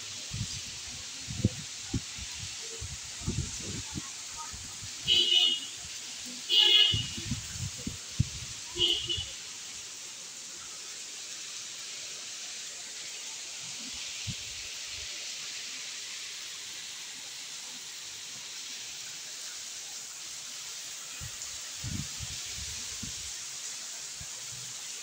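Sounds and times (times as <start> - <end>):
steady rain hiss: 0.0 - 25.0.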